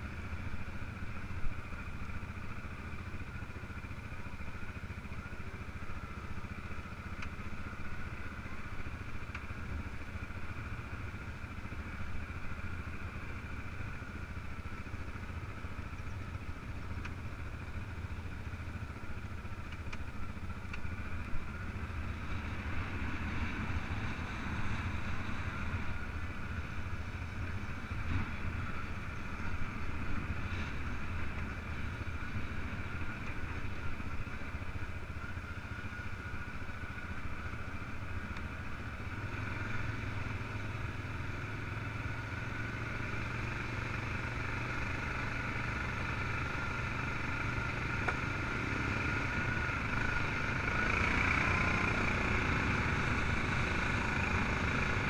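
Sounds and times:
quad bike engine running: 0.0 - 55.0.

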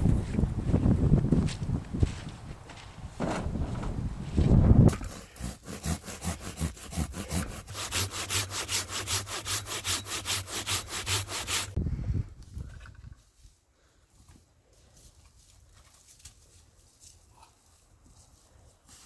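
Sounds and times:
hand saw cutting wood: 4.9 - 11.8.

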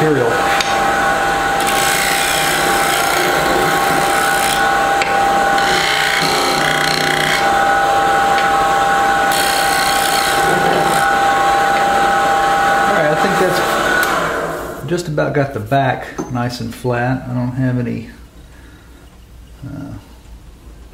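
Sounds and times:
wood lathe humming: 0.0 - 14.8.

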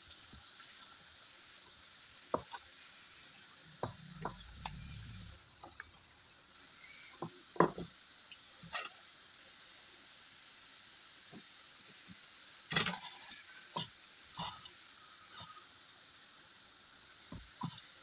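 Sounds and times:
low handling rumble: 4.3 - 5.5.

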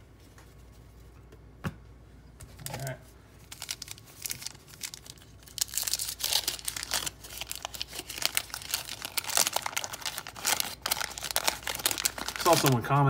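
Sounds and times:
waxed paper wrapper crinkling and tearing: 2.6 - 13.0.

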